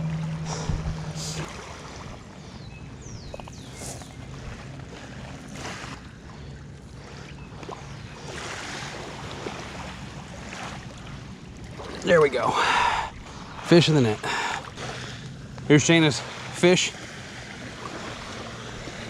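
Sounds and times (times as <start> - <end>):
wind on microphone: 0.0 - 2.3
waves lapping gravel shore: 3.4 - 6.2, 11.8 - 19.0.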